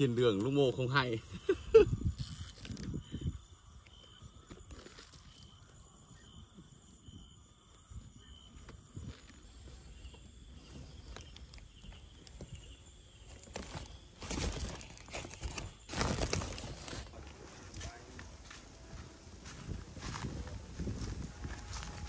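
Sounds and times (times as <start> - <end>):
footsteps outdoors: 3.9 - 22.0
rustling: 13.2 - 17.4.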